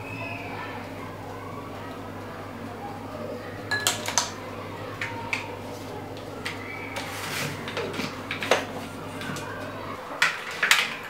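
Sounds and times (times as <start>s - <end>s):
utensils clicking and knocking: 6.2s - 9.5s, 10.1s - 11.0s.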